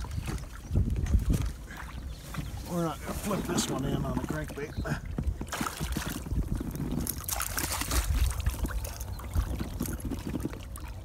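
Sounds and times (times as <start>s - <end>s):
fish splashing in water: 5.4s - 11.0s.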